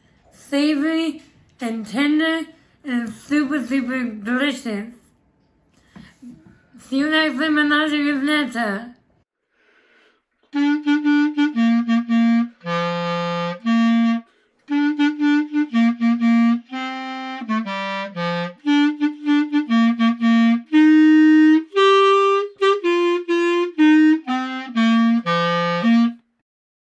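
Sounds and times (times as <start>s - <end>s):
solo clarinet melody: 10.4s - 26.4s.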